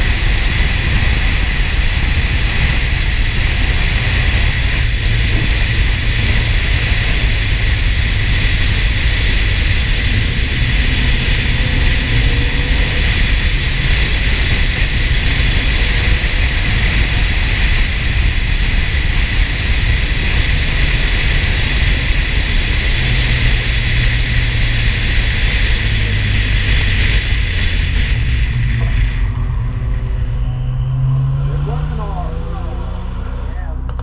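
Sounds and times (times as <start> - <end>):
low engine drone: 0.0 - 34.0
wind and road noise: 0.0 - 34.0.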